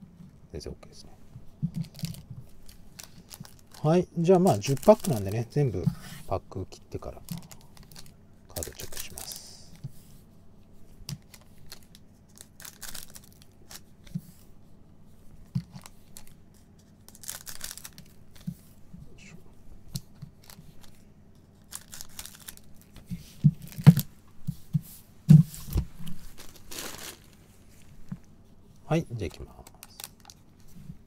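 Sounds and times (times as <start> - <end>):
foil wrappers ripping: 1.8 - 5.8, 7.0 - 9.8, 11.2 - 13.9, 17.0 - 18.4, 21.6 - 23.0, 23.6 - 24.1, 26.1 - 27.4, 29.2 - 30.4.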